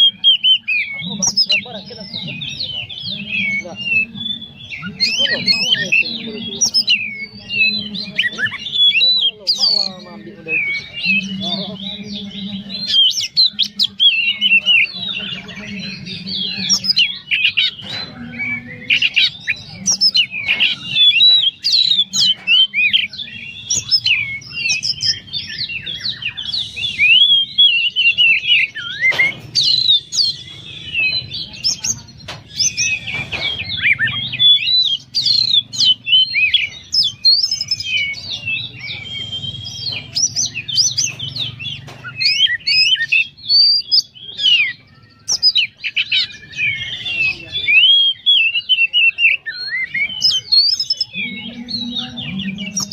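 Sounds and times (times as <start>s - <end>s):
songbird singing varied whistles: 18.4s - 31.8s, 32.5s - 52.9s.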